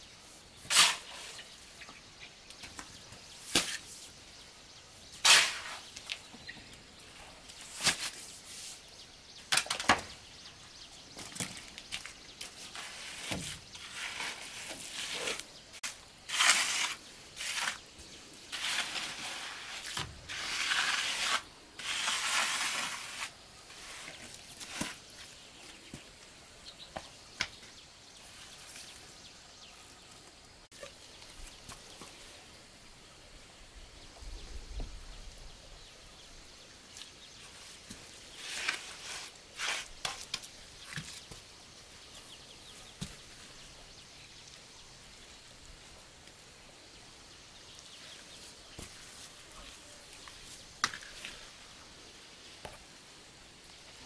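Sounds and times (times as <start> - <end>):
hand tool scraping strokes: 0.2 - 1.6, 5.1 - 6.0, 12.4 - 25.4, 38.3 - 40.4.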